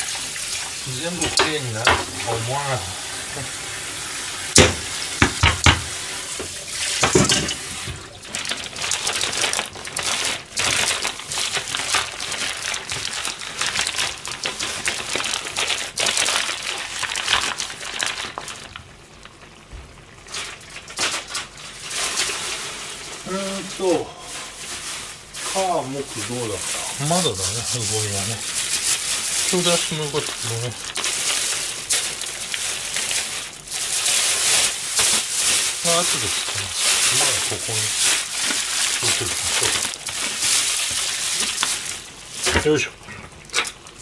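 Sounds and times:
newspaper rustling and crinkling: 0.8 - 2.8, 5.2 - 18.8, 20.2 - 44.0
knocks: 4.6 - 5.9.

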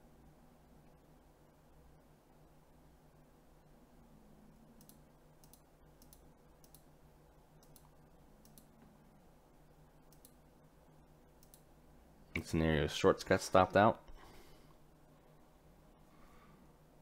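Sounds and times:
faint low room hum: 0.0 - 17.0
soft clicks: 4.8 - 6.9, 7.6 - 9.0, 10.1 - 10.4, 11.4 - 11.7.

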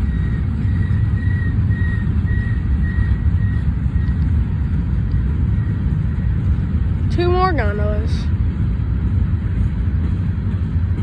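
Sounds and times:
faint high squeal: 0.0 - 4.2
freight train cars rolling on rails: 0.0 - 11.0.

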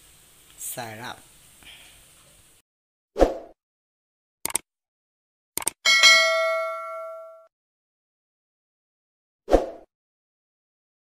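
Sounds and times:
notification bell ding: 5.9 - 7.5.

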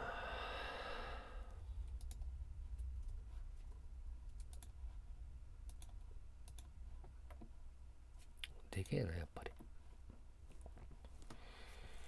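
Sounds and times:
low steady hum: 0.0 - 12.0
computer clicks: 1.9 - 2.3, 4.3 - 4.8, 5.7 - 6.7.

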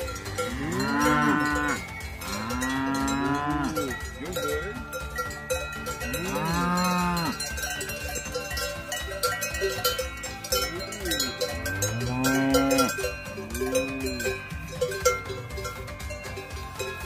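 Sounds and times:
cowbells clanking: 0.0 - 17.0
cow mooing: 0.5 - 3.9, 6.1 - 7.4, 11.6 - 14.4.

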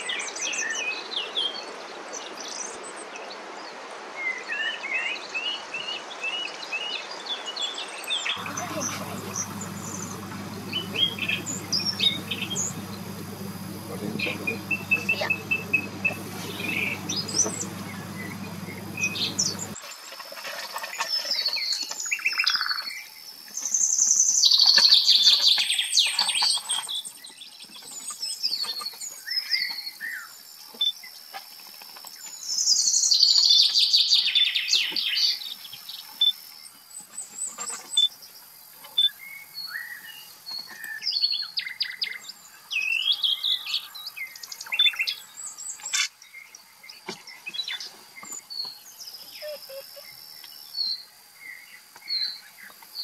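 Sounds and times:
birds chirping and singing: 8.4 - 19.8
steady low hum: 8.4 - 19.8.

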